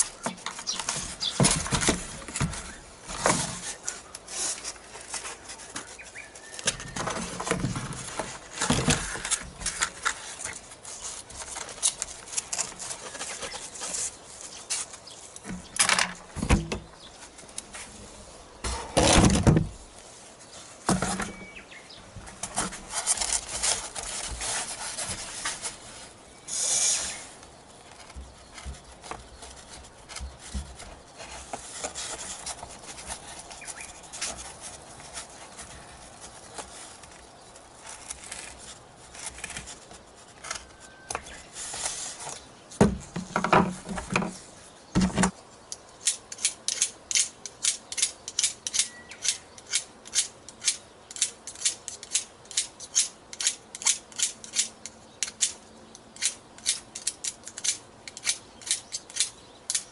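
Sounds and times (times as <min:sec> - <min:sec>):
foam wing scratching on wood: 0:22.2 - 0:42.5.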